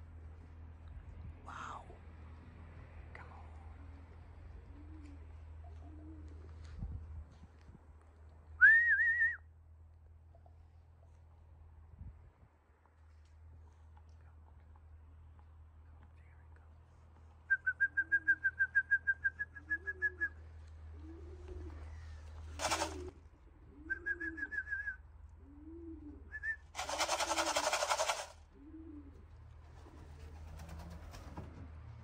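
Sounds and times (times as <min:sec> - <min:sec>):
pigeon cooing: 0:03.7 - 0:06.7, 0:19.5 - 0:31.4
wings flapping: 0:22.4 - 0:23.1, 0:26.7 - 0:28.4, 0:29.6 - 0:31.6
fast high pips: 0:22.6 - 0:23.1, 0:26.8 - 0:28.3.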